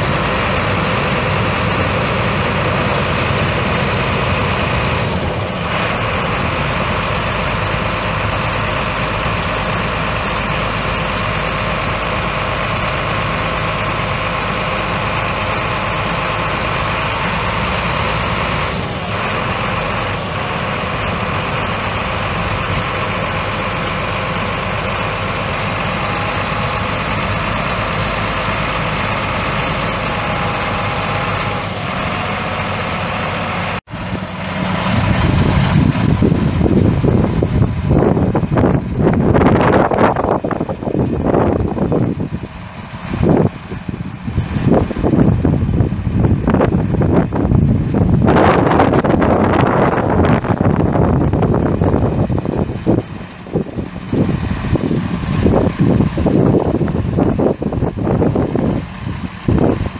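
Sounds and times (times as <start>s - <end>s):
diesel truck engine idling: 0.0s - 59.9s.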